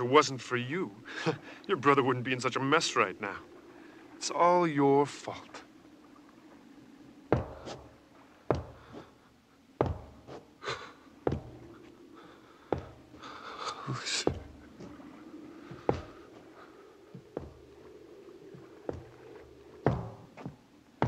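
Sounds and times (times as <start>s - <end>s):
faint low hum: 0.0s - 21.0s
sharp thuds: 7.3s - 9.2s, 9.8s - 10.5s, 15.7s - 16.4s, 18.8s - 21.0s.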